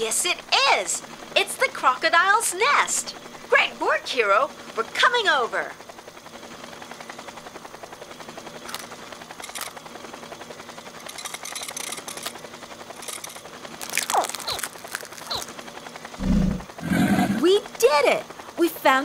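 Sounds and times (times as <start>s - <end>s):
cartoon propellers whirring: 6.5s - 19.0s
short cracks: 13.0s - 15.5s
quick falling squeaks: 13.8s - 15.5s.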